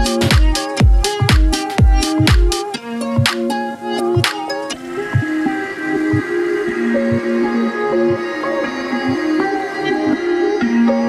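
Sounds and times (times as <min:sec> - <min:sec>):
kick drum: 0:00.0 - 0:02.6
electronic dance music: 0:00.0 - 0:11.0
sustained synth chords: 0:00.0 - 0:11.0.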